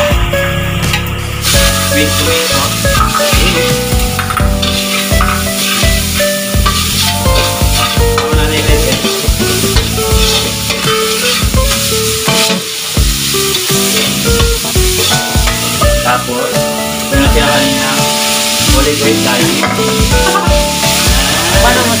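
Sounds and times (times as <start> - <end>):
background music: 0.0 - 22.0
oil sizzling: 0.0 - 22.0
ladle scraping a wok: 1.2 - 12.8, 13.8 - 15.8.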